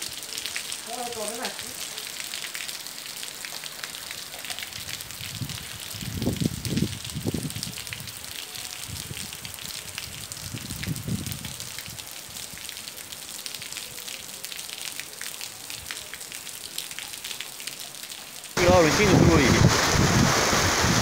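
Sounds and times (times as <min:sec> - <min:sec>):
rain on cobblestones: 0:00.0 - 0:21.0.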